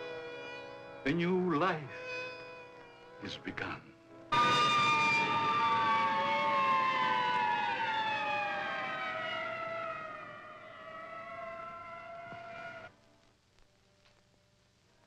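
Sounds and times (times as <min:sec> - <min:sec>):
ambulance siren wailing: 0:04.3 - 0:12.9.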